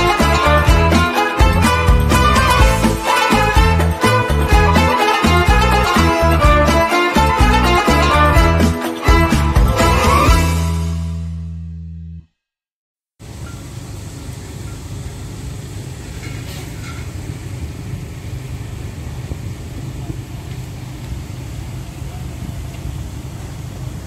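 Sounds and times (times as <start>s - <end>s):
low rumble of traffic: 13.2s - 24.0s.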